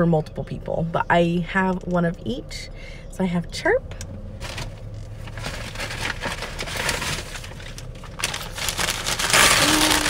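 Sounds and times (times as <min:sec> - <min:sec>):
tissue paper rustling: 0:04.4 - 0:10.0.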